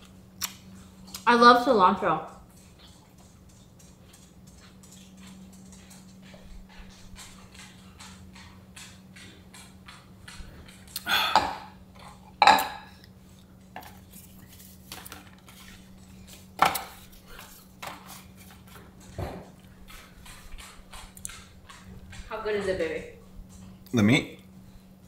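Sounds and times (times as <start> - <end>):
chewing clicks: 0.4 - 1.3, 2.3 - 11.1, 19.6 - 22.3
tableware clattering: 11.4 - 12.9.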